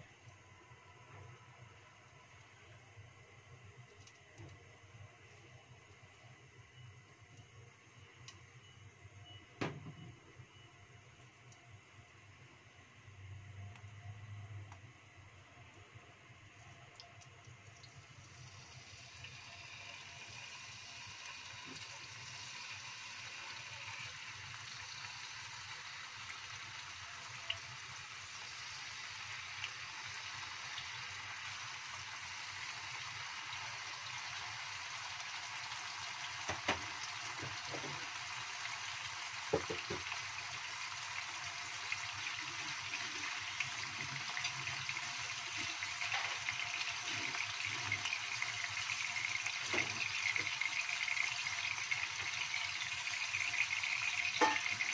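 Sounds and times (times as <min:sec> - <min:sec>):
fish sizzling in hot oil: 0:17.8 - 0:54.9.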